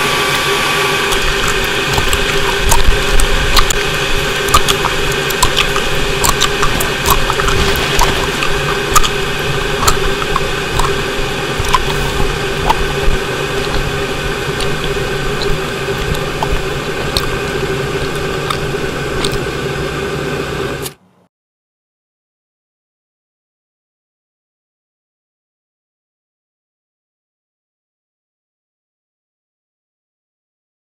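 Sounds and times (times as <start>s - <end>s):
dense droning noise: 0.0s - 21.3s
fixed hums: 0.0s - 21.3s
small clicks and crackles: 1.1s - 19.5s.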